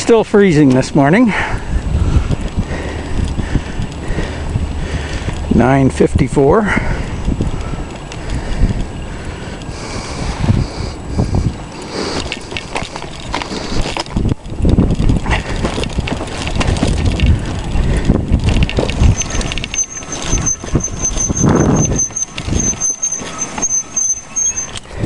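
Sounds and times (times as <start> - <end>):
wind on microphone: 1.4 - 5.7, 6.7 - 25.0
high pulsing whine: 18.7 - 25.0.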